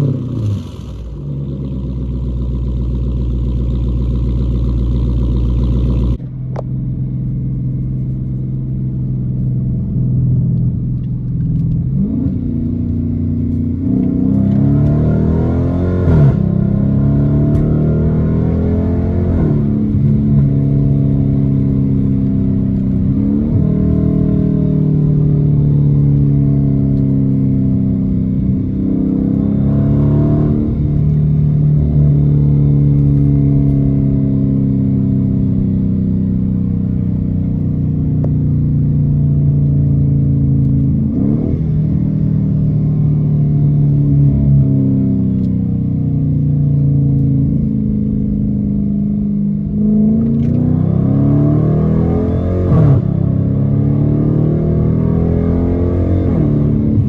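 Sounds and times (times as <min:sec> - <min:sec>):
car engine exhaust note while driving: 0:00.0 - 0:57.0
engine rev sweeps: 0:11.9 - 0:27.6, 0:49.7 - 0:57.0.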